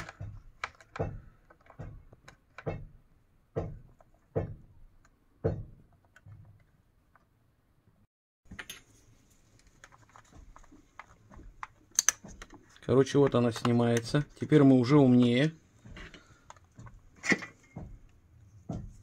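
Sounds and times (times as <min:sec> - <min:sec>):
plastic latches clicking: 0:00.0 - 0:02.7, 0:11.0 - 0:12.6.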